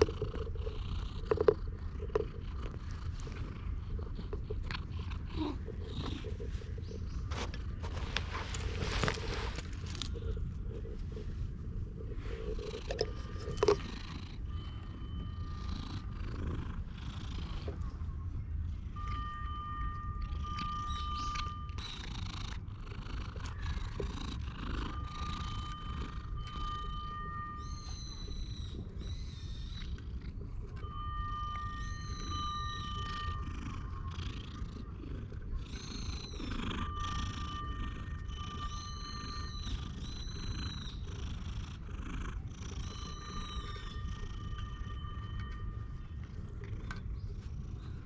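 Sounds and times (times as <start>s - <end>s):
cat purring: 0.0s - 48.0s
cat calls: 42.1s - 46.3s
thin high tone: 42.9s - 46.2s.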